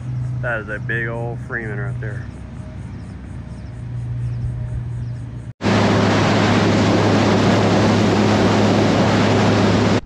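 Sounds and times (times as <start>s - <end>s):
boat engine hum: 0.0s - 10.0s
outboard engines droning: 0.0s - 10.0s
wind and water rushing: 5.6s - 10.0s.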